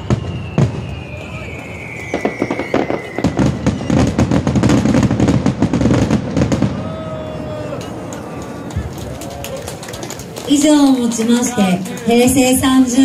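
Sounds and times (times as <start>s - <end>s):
falling firework whistle: 0.0s - 8.0s
fireworks bangs: 0.0s - 13.0s
fireworks crackling: 0.0s - 13.0s.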